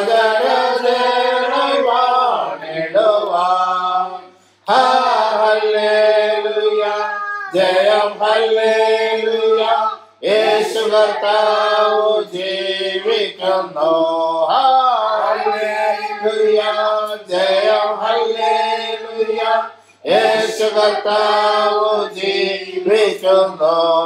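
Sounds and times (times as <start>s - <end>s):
man singing a slow hymn: 11.8s - 24.0s.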